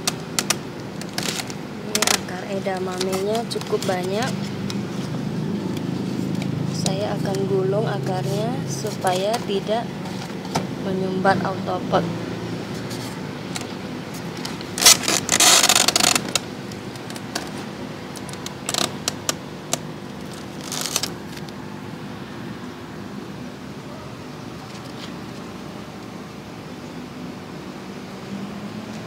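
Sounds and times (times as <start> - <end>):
steady low hum: 0.0 - 29.0
plastic scraping rustle: 0.4 - 5.2, 12.8 - 19.4, 20.2 - 21.5.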